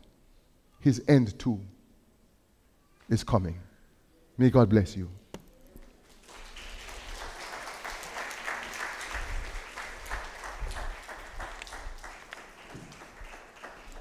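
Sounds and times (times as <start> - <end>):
congregation applauding: 6.0 - 14.0.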